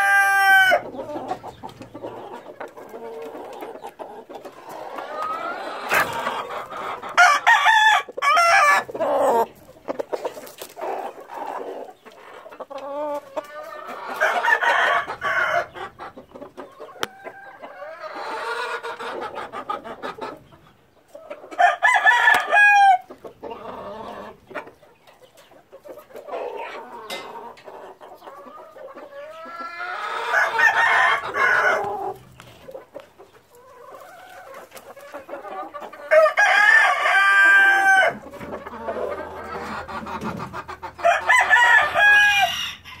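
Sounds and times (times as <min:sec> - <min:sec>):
roosters crowing: 0:00.0 - 0:03.9, 0:04.5 - 0:12.0, 0:12.8 - 0:16.0, 0:21.5 - 0:24.4, 0:29.0 - 0:32.6, 0:33.6 - 0:43.0
chickens clucking: 0:00.0 - 0:43.0.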